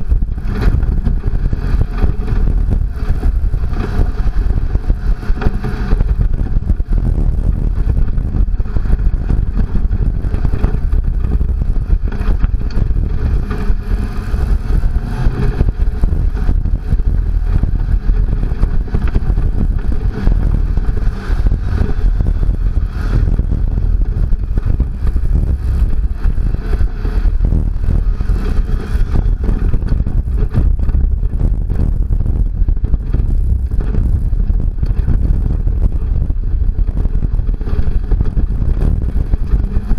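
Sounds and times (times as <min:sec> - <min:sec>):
engine and tyre noise: 0:00.0 - 0:39.9.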